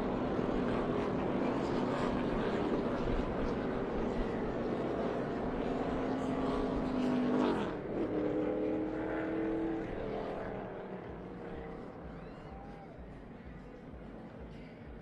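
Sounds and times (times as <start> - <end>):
race cars at full throttle: 0.0 - 15.0.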